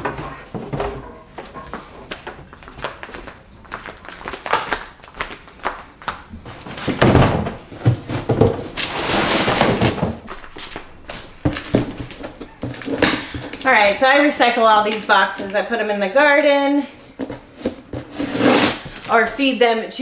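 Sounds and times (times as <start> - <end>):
cardboard box scraping on concrete: 8.2 - 10.1, 17.0 - 19.1.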